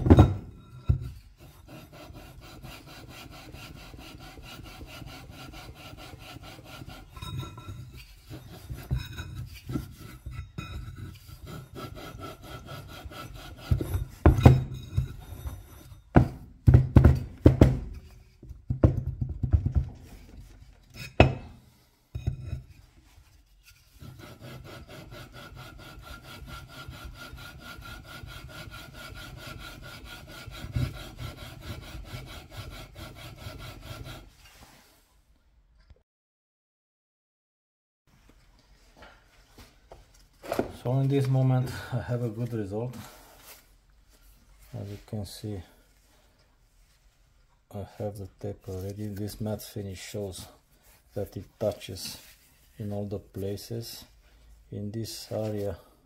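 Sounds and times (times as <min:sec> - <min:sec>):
metal-on-metal gritty rubbing: 0:00.0 - 0:16.1, 0:20.4 - 0:21.6, 0:22.2 - 0:34.9.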